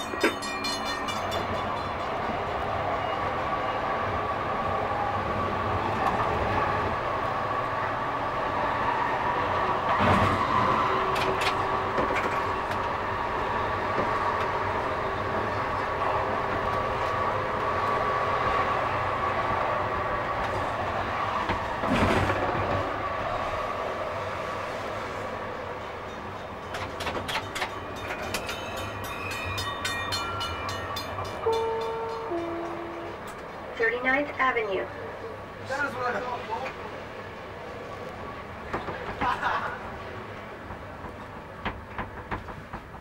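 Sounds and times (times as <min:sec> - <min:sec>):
light rail car rolling on track: 0:00.0 - 0:43.0.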